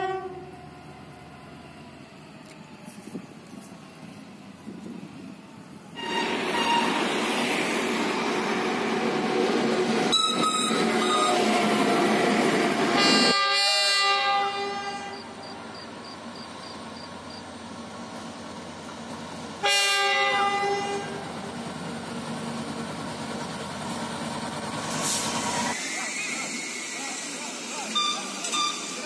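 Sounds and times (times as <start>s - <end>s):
locomotive horn blasts: 0.0s - 0.4s, 6.0s - 7.0s, 13.0s - 15.4s, 19.6s - 21.2s.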